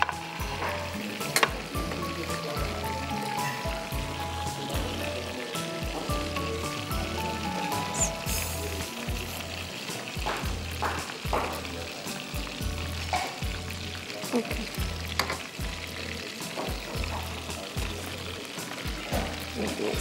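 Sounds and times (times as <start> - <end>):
background music beat: 0.0 - 20.0
chicken sizzling in oil: 0.0 - 20.0.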